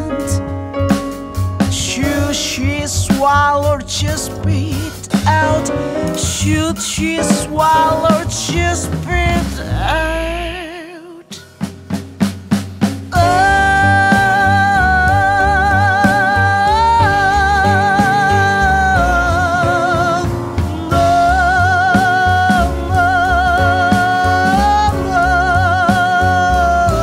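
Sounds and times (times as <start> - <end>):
jazz band with bass and drums: 0.0 - 27.0
woman singing with vibrato: 13.2 - 27.0.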